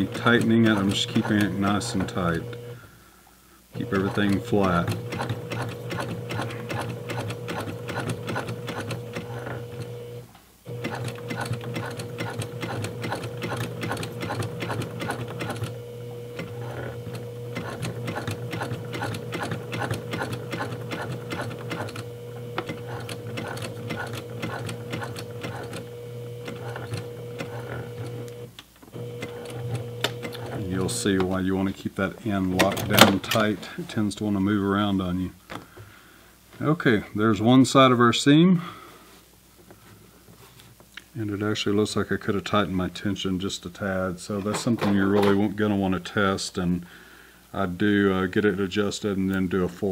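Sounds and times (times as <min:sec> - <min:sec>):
sewing machine stitching: 0:00.0 - 0:02.8, 0:03.8 - 0:31.0.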